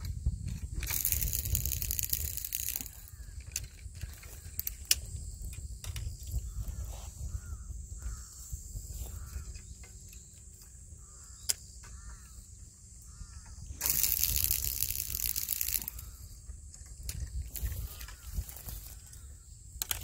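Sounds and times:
wind rumble on microphone: 0.0s - 20.0s.

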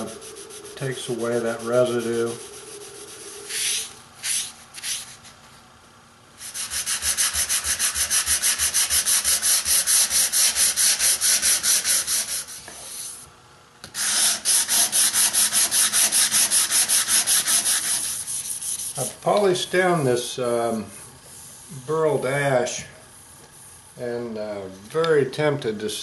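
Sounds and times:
sandpaper rubbing wood: 0.0s - 5.3s, 6.4s - 13.2s, 14.0s - 19.2s.

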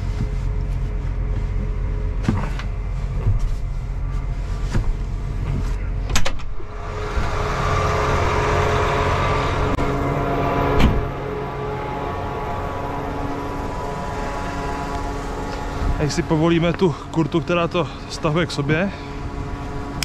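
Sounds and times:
tractor diesel engine idling: 0.0s - 20.0s
cab door opening click: 6.1s - 6.6s.

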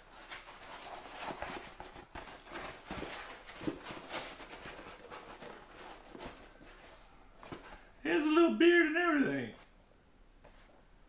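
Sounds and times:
foam decoy rustling: 0.0s - 7.9s.

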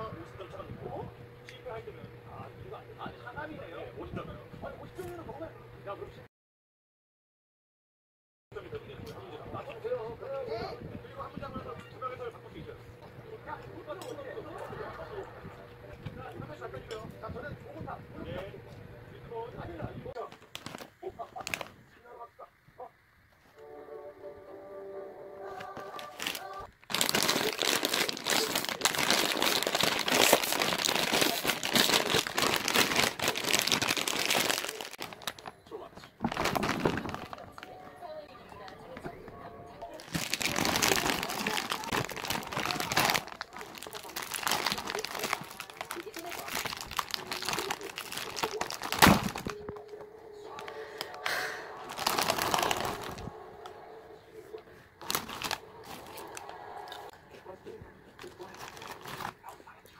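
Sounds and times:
plastic snack bag crinkling: 20.2s - 21.8s, 25.6s - 37.8s, 39.8s - 53.3s, 55.0s - 57.2s, 58.1s - 59.8s.

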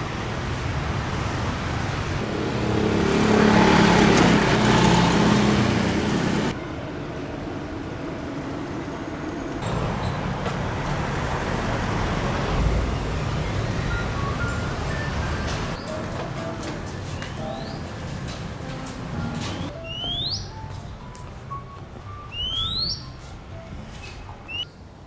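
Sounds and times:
traffic hum: 0.0s - 25.0s
vehicle engine passing: 0.8s - 6.6s.

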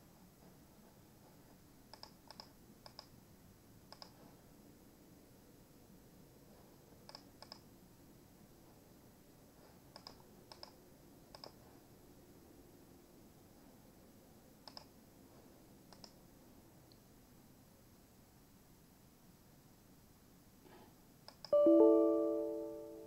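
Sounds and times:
computer mouse clicks: 1.9s - 3.2s, 3.9s - 4.3s, 7.0s - 7.7s, 9.9s - 11.8s, 14.6s - 15.0s, 15.9s - 16.2s, 21.2s - 21.6s.

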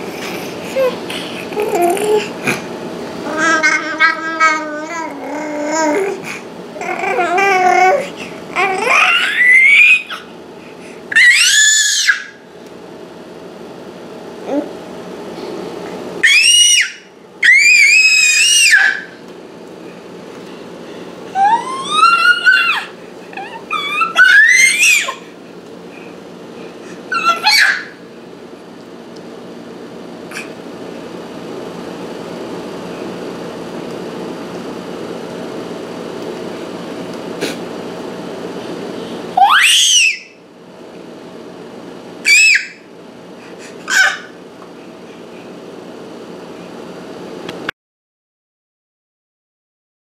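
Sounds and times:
steady mechanical hum: 0.0s - 47.7s
baby squealing: 8.6s - 10.3s, 11.1s - 12.4s, 16.2s - 19.2s, 21.3s - 25.2s, 27.1s - 28.0s, 39.4s - 40.4s, 42.3s - 42.8s, 43.8s - 44.4s.

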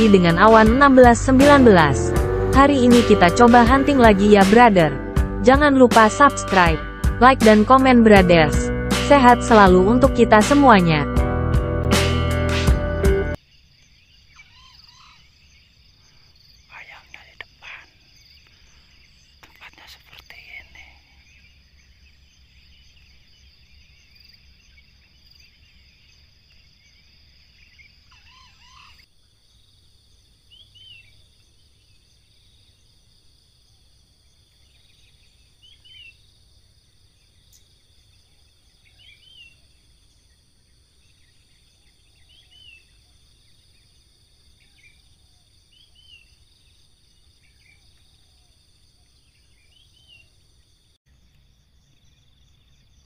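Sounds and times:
insects buzzing: 13.3s - 53.0s.

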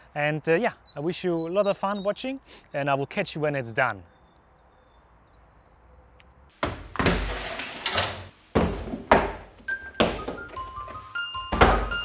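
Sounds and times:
rustling noise: 6.5s - 9.2s, 10.2s - 12.0s.

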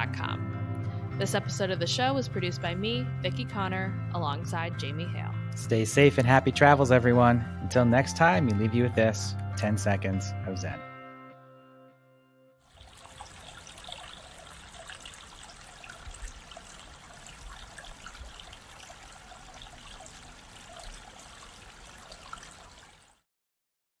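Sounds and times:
stream trickling: 12.6s - 23.3s.

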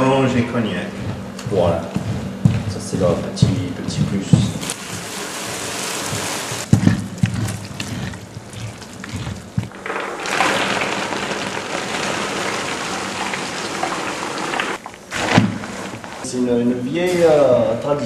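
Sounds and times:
almonds pouring into pan: 9.7s - 16.0s.

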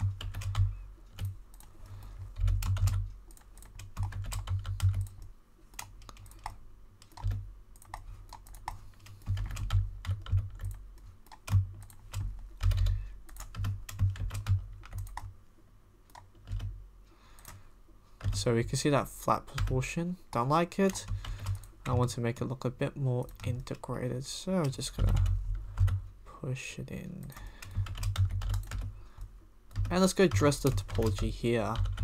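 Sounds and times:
computer keyboard typing: 0.0s - 15.3s, 16.1s - 16.7s, 18.2s - 18.5s, 19.5s - 22.0s, 24.6s - 26.0s, 27.2s - 32.0s.

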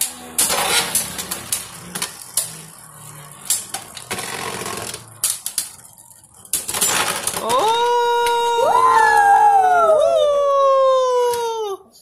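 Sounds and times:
spinning tops clacking together: 0.0s - 8.5s
spinning tops whirring and rattling: 0.0s - 9.4s.

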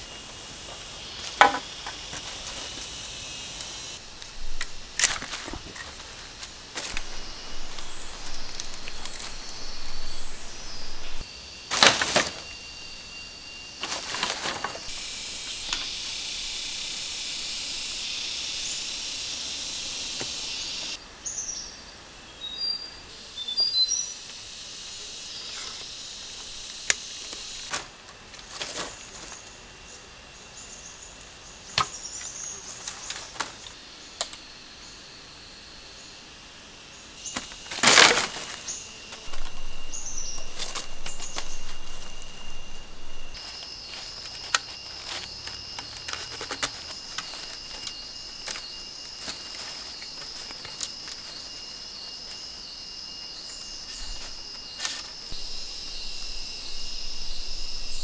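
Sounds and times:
steady high insect buzz: 0.0s - 58.0s
bird chirps: 38.7s - 58.0s.

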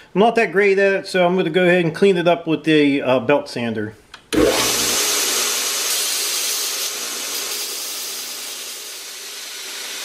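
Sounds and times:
belt sander grinding steel: 4.4s - 10.0s.

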